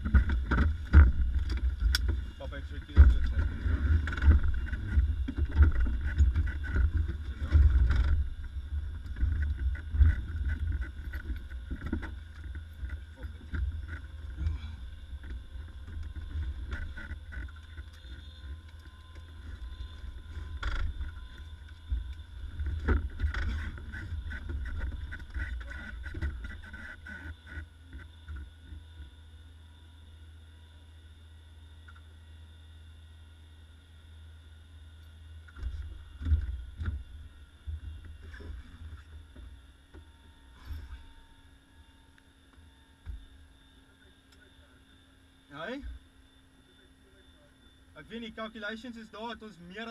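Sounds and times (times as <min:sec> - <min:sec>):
wind rumbling on microphone: 0:00.0 - 0:27.6
knocks and rustles of people moving: 0:00.0 - 0:28.5.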